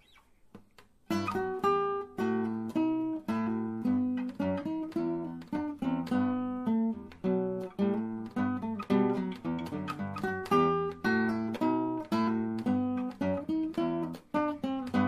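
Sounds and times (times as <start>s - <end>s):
acoustic guitar playing: 0.0s - 15.0s.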